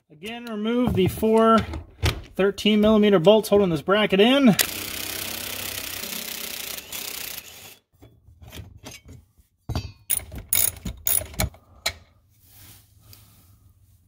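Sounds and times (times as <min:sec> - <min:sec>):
hand ratchet clicking: 0:04.6 - 0:07.7, 0:10.1 - 0:11.5.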